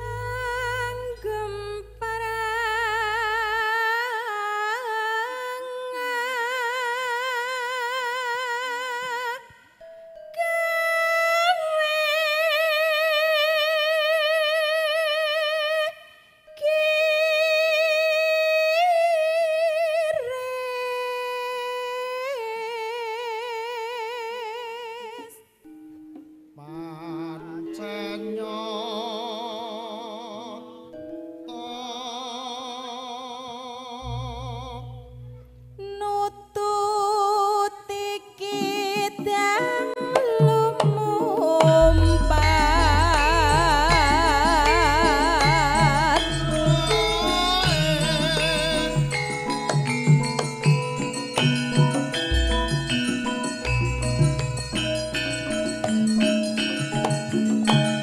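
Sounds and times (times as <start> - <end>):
gamelan held notes: 0.0 - 5.6, 34.1 - 36.6, 38.5 - 58.0.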